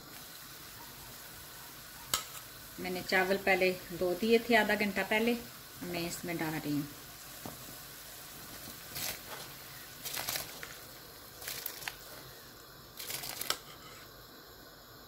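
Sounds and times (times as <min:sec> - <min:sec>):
metal spoon scraping rice from bowl: 0:13.4 - 0:14.1.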